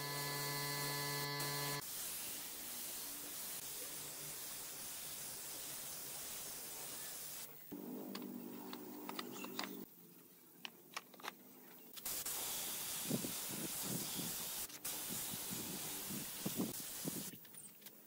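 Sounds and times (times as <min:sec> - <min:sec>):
spray gun hissing: 0:00.0 - 0:07.5, 0:12.0 - 0:17.3.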